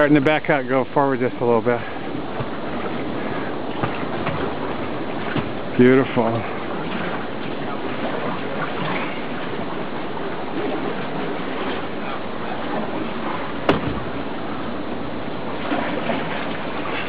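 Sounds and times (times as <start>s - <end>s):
river water rushing: 0.0s - 17.0s
sharp knock: 13.7s - 14.0s.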